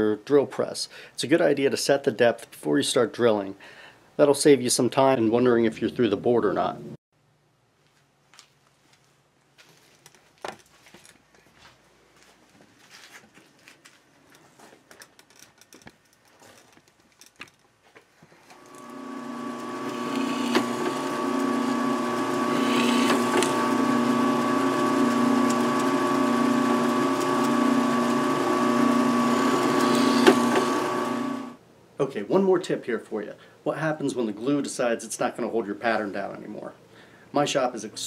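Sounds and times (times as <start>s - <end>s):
drill press motor hum: 18.5s - 31.6s
drill bit boring through wood: 18.6s - 31.6s.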